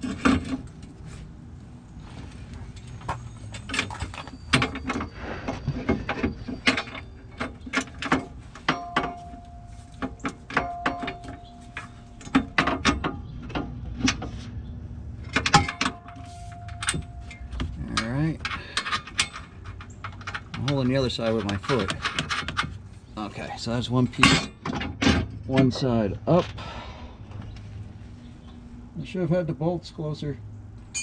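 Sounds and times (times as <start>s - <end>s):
metal brace clinking and knocking: 2.7s - 14.3s, 15.2s - 22.8s, 24.0s - 25.9s.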